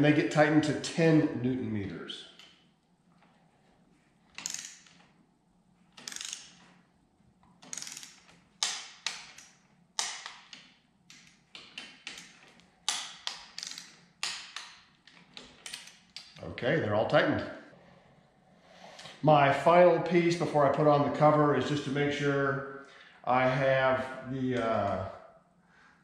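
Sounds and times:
torque wrench ratchet clicking: 4.4 - 5.0, 6.0 - 6.6, 7.6 - 10.3.

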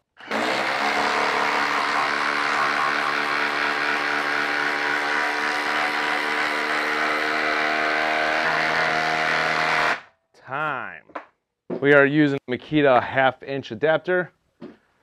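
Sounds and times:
impact driver hammering: 0.2 - 10.1.

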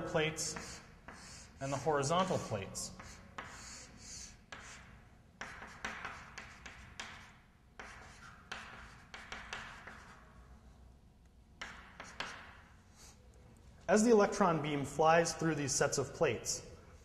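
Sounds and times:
chalk scratching on blackboard: 0.3 - 10.6, 11.6 - 13.3.

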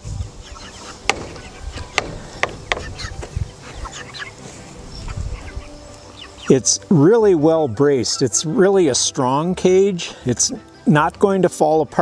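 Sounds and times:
chickens clucking and cheeping: 0.0 - 10.9
low thumps: 1.0 - 3.6
sharp clicks: 1.1 - 3.4.

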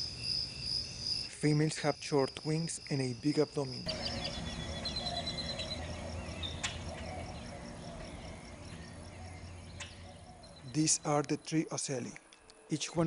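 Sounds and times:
insects chirping: 0.0 - 13.0
faint wavering bird-like calls: 3.8 - 11.1
low hum: 3.9 - 11.3.

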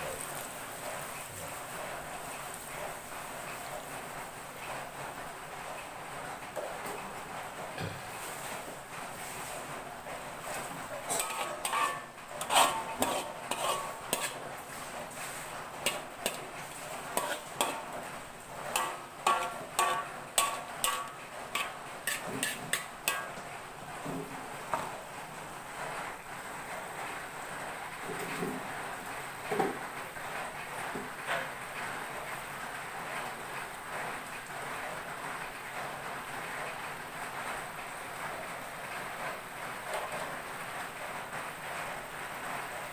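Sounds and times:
metal spatula scraping a wok: 10.4 - 23.4.

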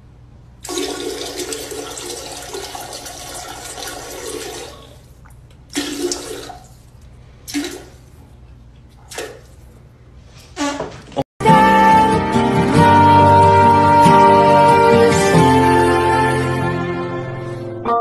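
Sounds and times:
toilet flushing: 0.6 - 8.2, 9.0 - 9.7.

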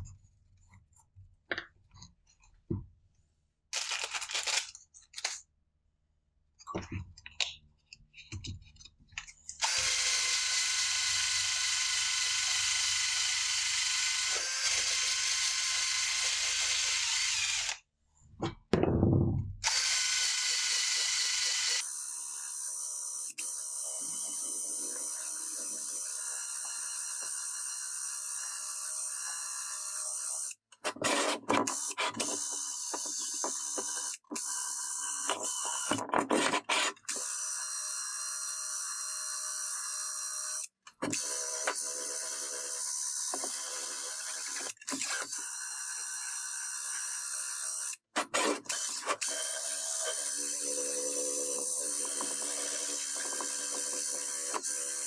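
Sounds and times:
power tool whirring: 9.6 - 17.8, 19.6 - 22.5.

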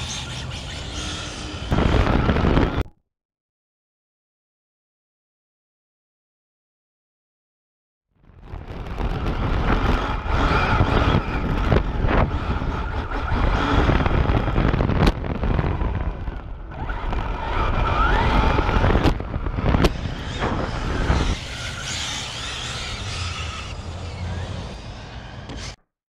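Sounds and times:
tyre and road rumble: 8.4 - 25.8
electric motor whine: 8.5 - 25.8.

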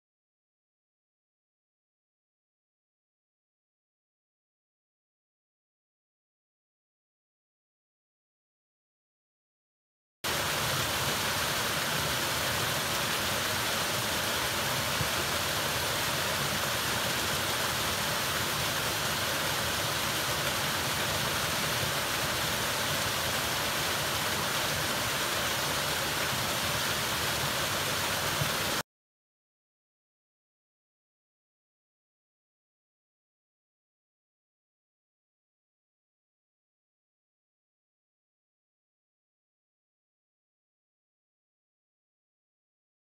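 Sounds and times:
waterfall rushing water: 10.3 - 28.8.

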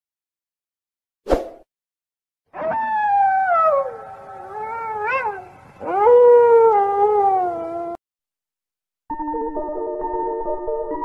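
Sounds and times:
cat yowling: 2.6 - 8.0.

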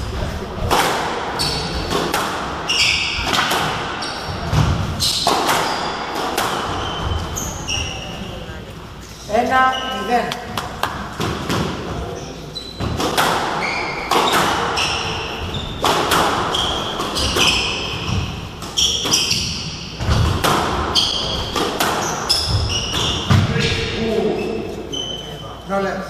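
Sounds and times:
sneakers squeaking on wooden floor: 1.3 - 8.7, 9.3 - 25.7
squash ball cracking: 12.9 - 15.1, 15.8 - 22.2.

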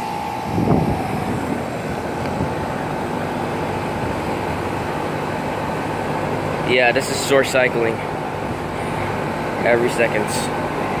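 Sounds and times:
air conditioner fan rushing: 0.0 - 11.0
thin whine: 0.0 - 11.0.

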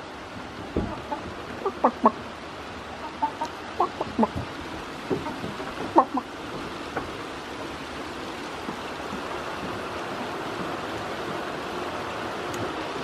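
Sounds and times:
rain hissing: 0.0 - 13.0
clucking calls: 0.6 - 7.0.

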